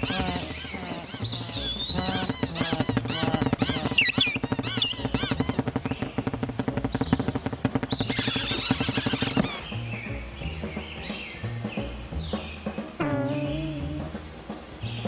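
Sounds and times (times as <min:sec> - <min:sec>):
rapid creaking pulses: 0:00.0 - 0:09.8
cartoon birds chirping: 0:00.0 - 0:11.2, 0:11.8 - 0:14.1.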